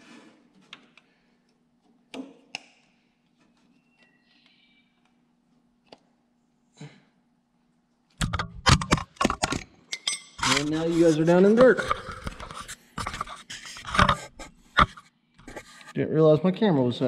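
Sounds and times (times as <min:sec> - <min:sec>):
camera falling and clattering: 0:08.2 - 0:09.7.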